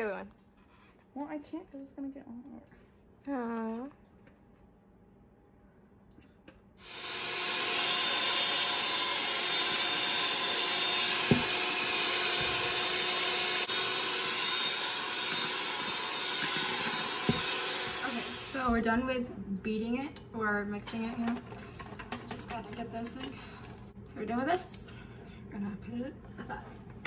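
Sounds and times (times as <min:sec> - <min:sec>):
electric hand mixer running: 0:06.8 - 0:18.9.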